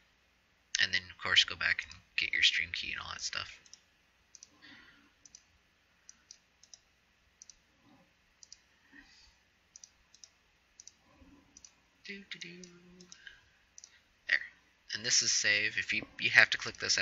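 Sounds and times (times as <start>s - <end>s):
computer mouse clicks: 3.6s - 4.6s, 5.2s - 5.5s, 6.1s - 7.6s, 8.4s - 8.7s, 9.7s - 11.0s, 11.6s - 11.8s.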